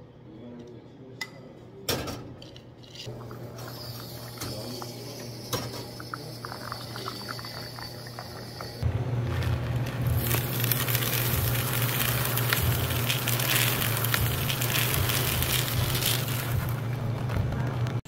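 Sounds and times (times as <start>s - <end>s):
coffee grinder motor hum: 3.5s - 17.1s
beans crackling being crushed: 9.1s - 18.0s.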